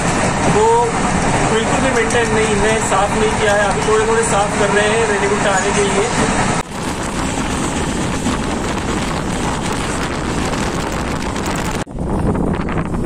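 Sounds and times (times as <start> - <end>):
train wheel and rail noise: 0.0 - 13.0
wind buffeting microphone: 6.0 - 13.0.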